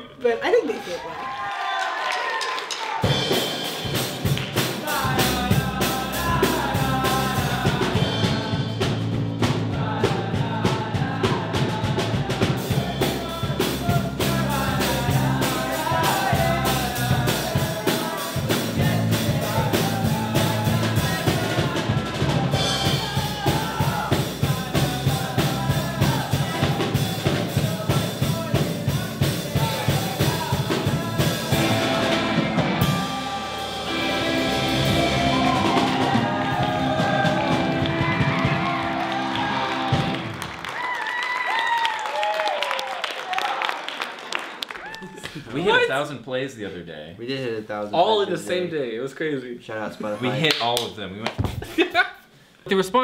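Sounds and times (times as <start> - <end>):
drum kit beat: 2.6 - 40.6
rock band playing: 2.9 - 40.6.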